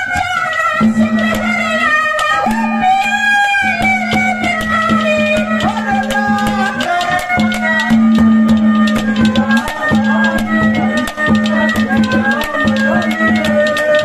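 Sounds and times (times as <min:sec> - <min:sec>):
folk melody over drone: 0:00.0 - 0:14.0
hand drum beat: 0:00.0 - 0:14.0.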